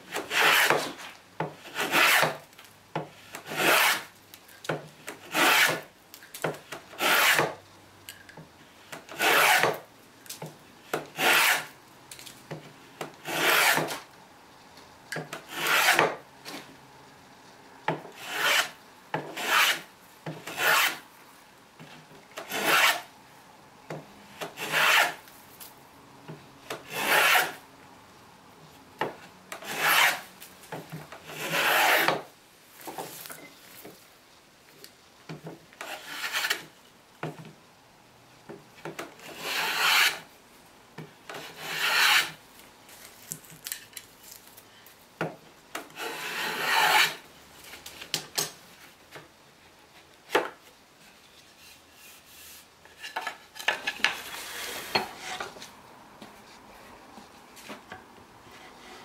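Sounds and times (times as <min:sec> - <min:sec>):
hand plane rasping on wood: 0:00.3 - 0:00.9, 0:01.7 - 0:02.3, 0:03.5 - 0:04.0, 0:05.3 - 0:05.8, 0:07.0 - 0:07.5, 0:09.2 - 0:09.8, 0:13.2 - 0:13.9, 0:15.5 - 0:16.1, 0:18.2 - 0:18.7, 0:19.4 - 0:19.8, 0:20.5 - 0:20.9, 0:22.5 - 0:23.0, 0:24.6 - 0:25.2, 0:26.9 - 0:27.6, 0:29.6 - 0:30.2, 0:31.4 - 0:32.2, 0:39.3 - 0:40.2, 0:41.5 - 0:42.4, 0:46.0 - 0:47.2.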